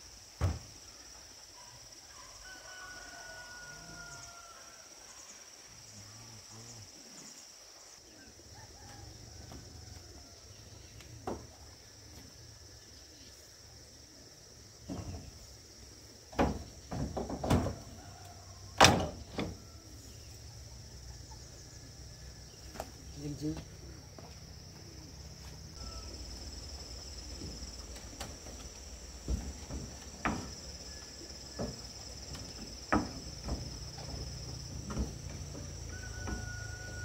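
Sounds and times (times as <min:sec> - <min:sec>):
insects chirring: 0:00.0 - 0:37.0
sharp knocks and clatters: 0:16.3 - 0:17.8, 0:27.4 - 0:30.7, 0:31.5 - 0:36.5.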